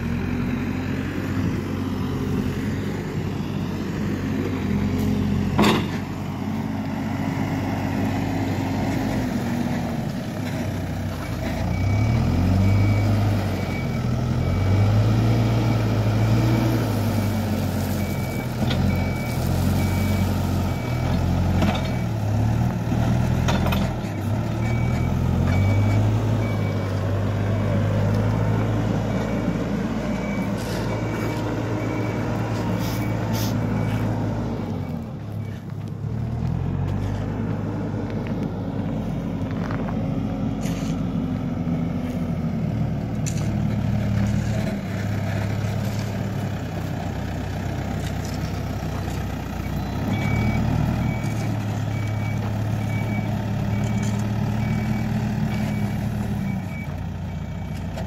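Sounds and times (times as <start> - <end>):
backhoe diesel engine working: 0.0 - 58.0
reversing alarm beeping: 11.2 - 22.2, 24.5 - 35.6, 49.5 - 57.8.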